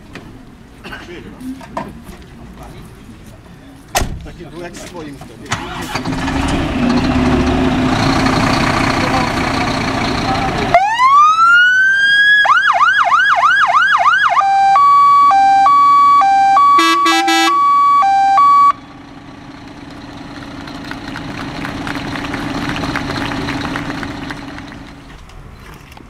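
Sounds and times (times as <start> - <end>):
electronic siren wailing and yelping: 10.7 - 18.8.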